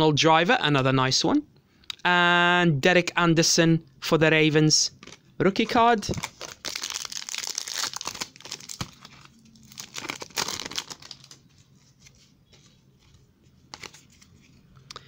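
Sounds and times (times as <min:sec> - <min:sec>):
cards rustling and clicking: 0:05.0 - 0:14.9
card pack wrapper tearing: 0:06.0 - 0:11.4.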